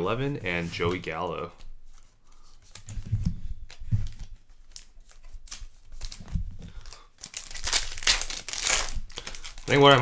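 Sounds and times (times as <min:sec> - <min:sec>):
cards being handled: 0:00.7 - 0:10.0
foil wrappers tearing and crinkling: 0:06.8 - 0:10.0.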